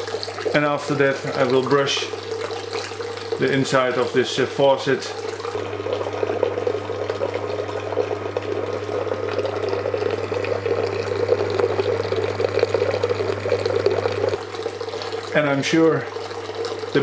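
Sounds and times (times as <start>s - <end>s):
liquid splashing into container: 0.0s - 17.0s
pump humming: 0.0s - 17.0s.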